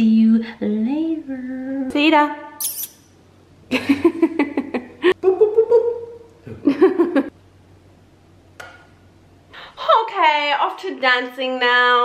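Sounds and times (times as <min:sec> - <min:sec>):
woman making laughter-like sounds: 0:03.7 - 0:07.3.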